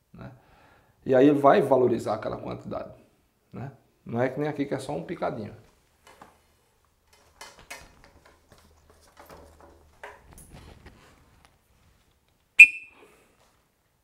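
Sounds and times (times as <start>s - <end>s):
faint rustles and clicks: 5.6s - 12.5s
shrill whistle blast: 12.6s - 13.1s.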